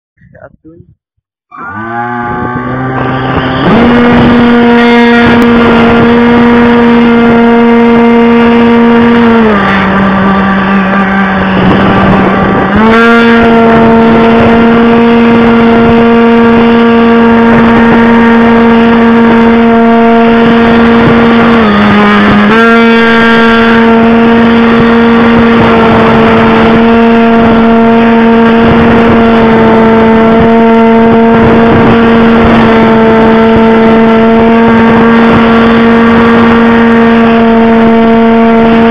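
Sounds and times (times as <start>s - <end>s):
model plane motor droning: 1.5s - 38.9s.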